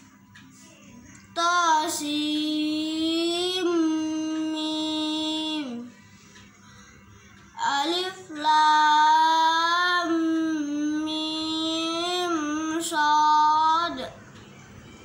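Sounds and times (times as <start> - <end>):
child chanting melodically: 7.6 - 14.2.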